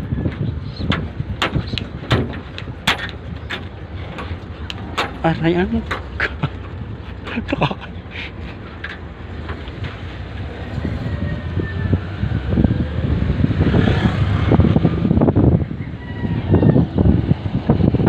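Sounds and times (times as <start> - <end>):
vehicle engine rumbling: 0.0 - 18.0
wind buffeting microphone: 0.0 - 18.0.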